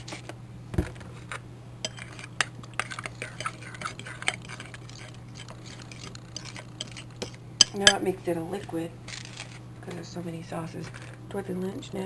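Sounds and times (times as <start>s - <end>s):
spoon stirring sauce in bowl: 1.8s - 8.8s
spoon clinking against bowl: 1.9s - 2.2s.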